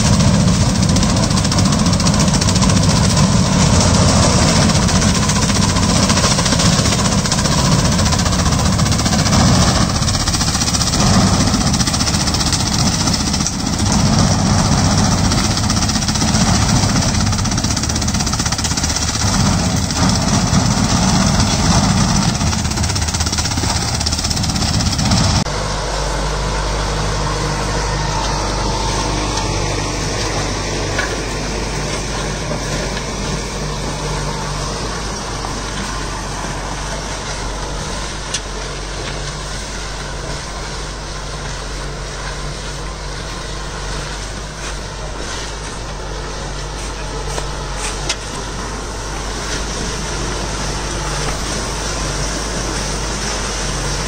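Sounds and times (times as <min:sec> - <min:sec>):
harrow discs churning soil: 0:00.0 - 0:54.0
tractor diesel engine running: 0:00.0 - 0:54.0.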